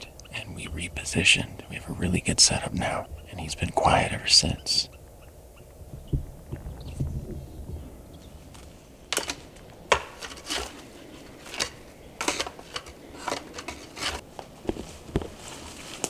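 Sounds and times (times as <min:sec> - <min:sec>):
footsteps crunching on dry ground: 0:09.4 - 0:16.0.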